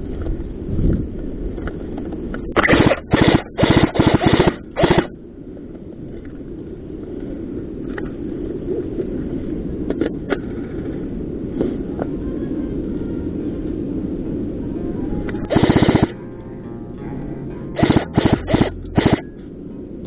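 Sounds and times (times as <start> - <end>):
airsoft rifle full-auto bursts: 2.6 - 5.1.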